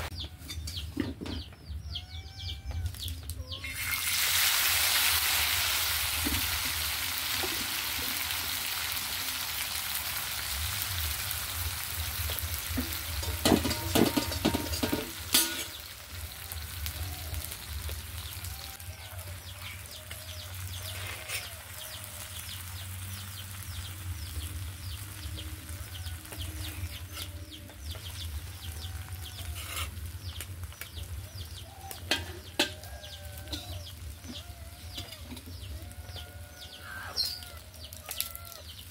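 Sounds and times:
fish frying in hot oil: 3.6s - 36.3s
ladle scraping a wok: 12.6s - 15.9s, 20.9s - 21.6s, 29.4s - 30.1s
chickens clucking: 24.2s - 38.8s.

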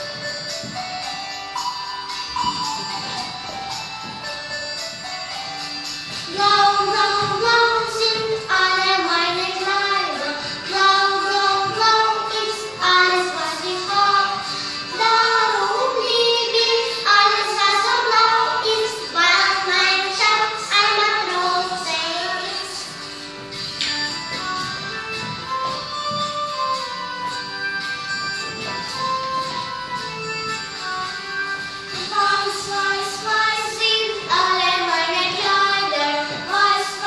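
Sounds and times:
instrumental backing track: 0.0s - 37.0s
young children singing: 6.1s - 23.0s, 31.9s - 37.0s.

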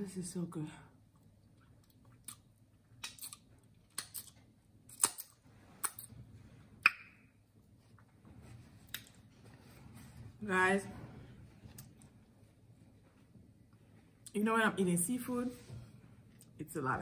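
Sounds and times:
chewing: 1.1s - 6.1s.

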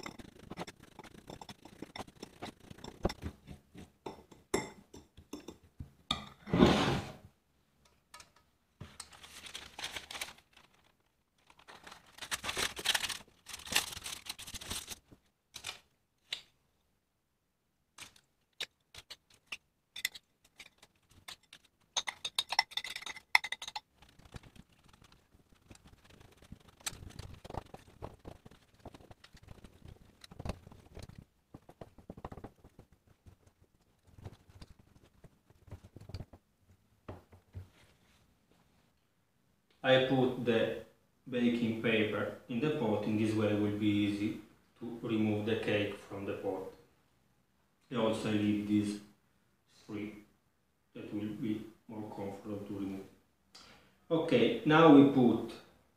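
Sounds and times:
spoon scraping metal tin: 0.0s - 4.0s, 19.4s - 24.5s
spoon scraping ceramic bowl: 0.0s - 5.6s, 20.0s - 23.9s.

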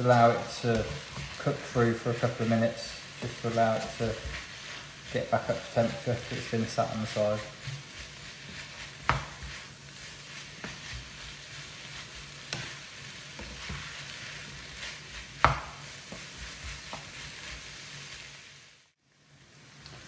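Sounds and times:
spatula scraping and tapping pan: 0.0s - 18.2s
food sizzling in frying pan: 0.0s - 20.0s
spatula knocking on pan: 9.0s - 9.6s, 15.4s - 16.3s.

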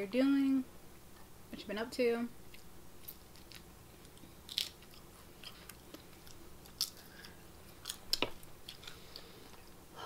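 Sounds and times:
crunching tortilla chips: 2.5s - 9.2s.

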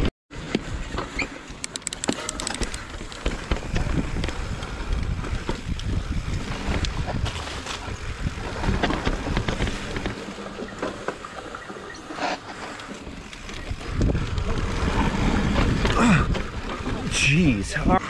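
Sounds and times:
bike tyres rolling on dirt trail: 0.3s - 18.0s
gravel and bike rattles: 0.3s - 18.0s
wind buffeting microphone: 2.3s - 10.2s, 13.3s - 18.0s.

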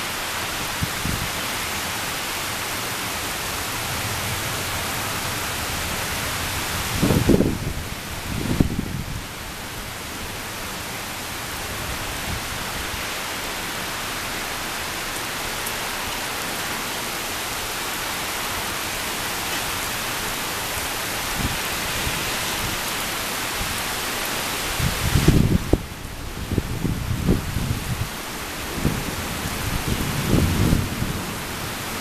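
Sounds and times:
heavy rain pouring: 0.0s - 32.0s
low thunder rumble: 3.6s - 10.5s, 24.8s - 32.0s.

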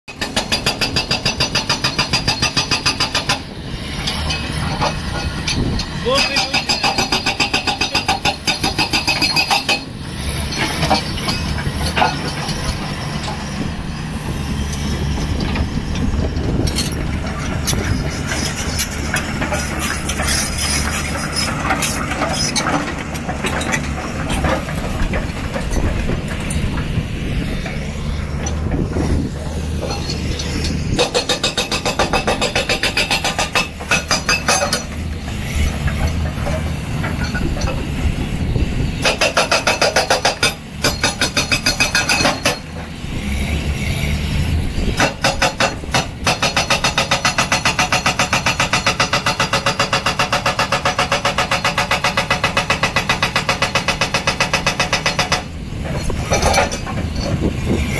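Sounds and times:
hydraulic breaker hammering rock: 0.1s - 3.5s, 4.1s - 13.5s, 27.6s - 37.9s, 39.0s - 44.2s, 44.8s - 57.9s
diesel engine running: 0.1s - 57.9s.

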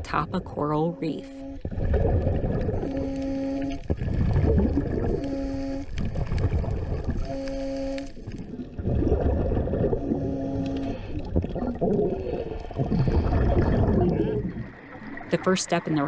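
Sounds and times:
bubbly diver exhalations: 11.2s - 14.7s.

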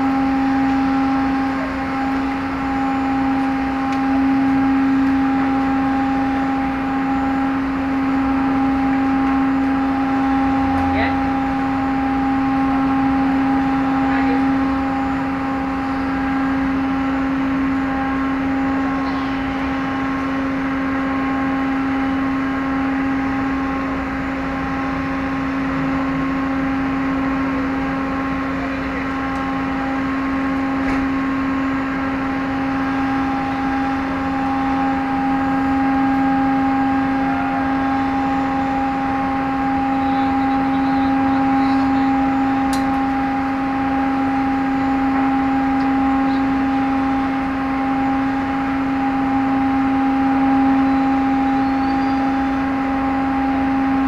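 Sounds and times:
ferry engines droning: 0.0s - 54.0s.

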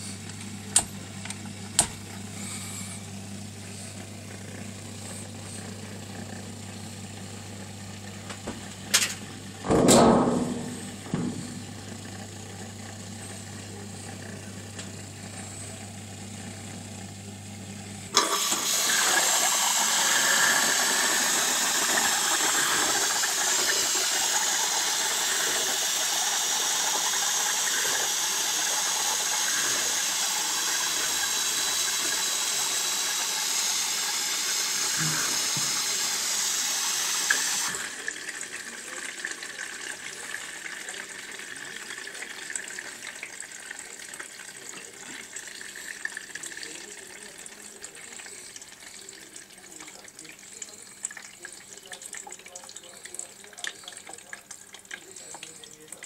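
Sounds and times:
dishwasher water rushing: 3.6s - 16.0s, 18.1s - 56.0s
water trickling: 38.1s - 56.0s.

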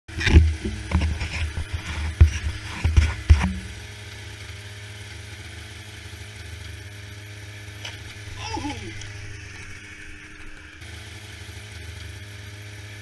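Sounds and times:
snowmobile engine rumbling: 0.1s - 4.5s, 6.8s - 10.8s
loud knocks and bumps: 0.2s - 3.8s.

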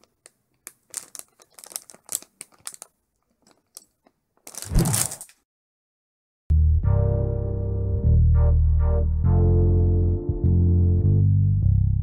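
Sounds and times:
plastic bag crinkling: 0.0s - 5.4s.

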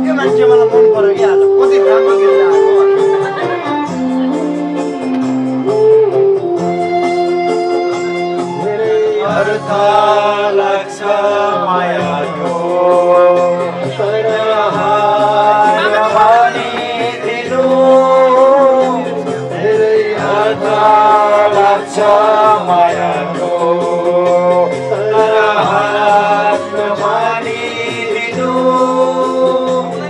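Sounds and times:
instrumental backing music: 0.0s - 30.0s
man singing into a microphone: 8.5s - 30.0s.

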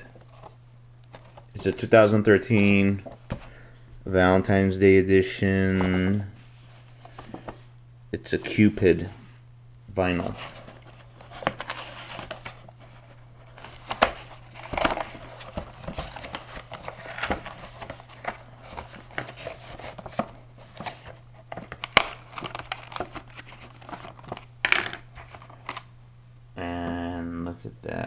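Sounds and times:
steady low hum: 0.0s - 28.0s
toy box packaging crinkling: 10.6s - 25.9s
packaging snapping: 13.6s - 25.9s.

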